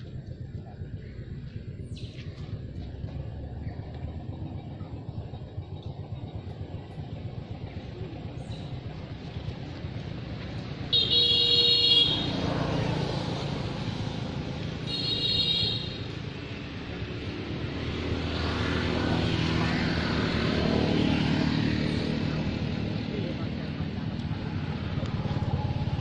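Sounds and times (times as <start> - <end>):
approaching vehicle engine: 0.0 - 11.0, 12.0 - 26.0
traffic rumble: 0.0 - 26.0
vehicle horn toots: 10.9 - 12.5, 14.8 - 16.1.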